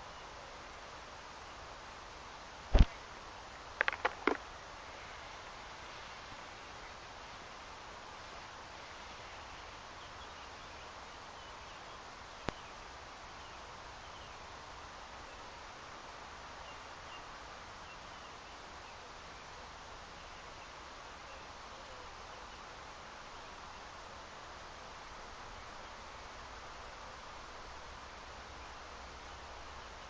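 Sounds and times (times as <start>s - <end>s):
steady hiss: 0.0s - 30.0s
sharp click: 2.7s - 3.0s, 3.8s - 4.4s.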